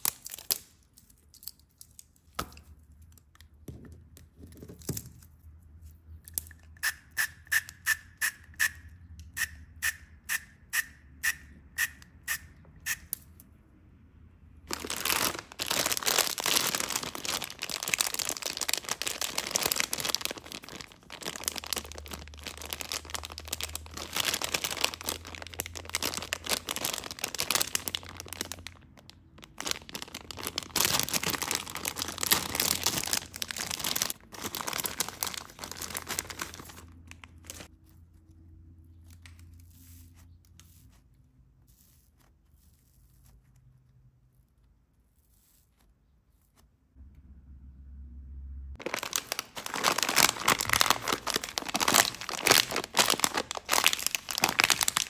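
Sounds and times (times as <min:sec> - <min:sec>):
plastic bag crinkling: 0:00.0 - 0:01.2, 0:14.6 - 0:37.7, 0:48.8 - 0:55.0.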